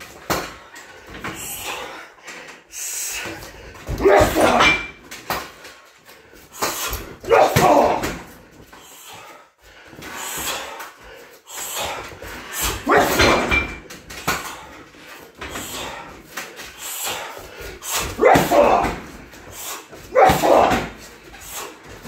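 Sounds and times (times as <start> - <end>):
loud vocal cry: 3.9 - 4.9, 7.2 - 8.3, 12.7 - 13.5, 17.9 - 19.2, 20.1 - 21.0
punching bag being hit: 20.1 - 21.0.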